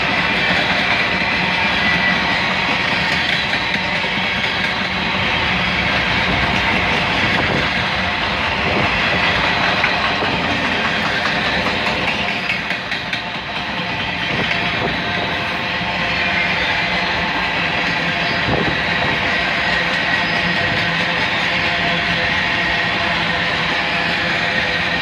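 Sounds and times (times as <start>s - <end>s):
steel wheels rumbling on rails: 0.0s - 25.0s.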